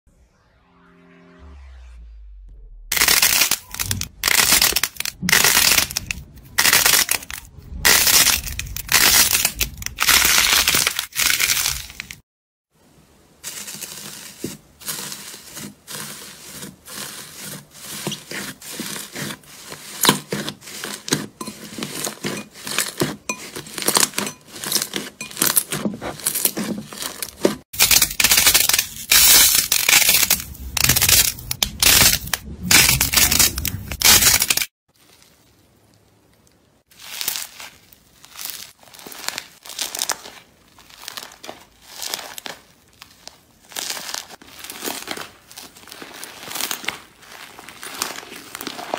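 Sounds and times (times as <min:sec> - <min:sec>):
slime balls crackling: 0:02.9 - 0:12.2, 0:13.4 - 0:48.9
foil crinkling in slime: 0:03.0 - 0:12.2, 0:13.4 - 0:48.9
slime stretching crackles: 0:27.8 - 0:48.9.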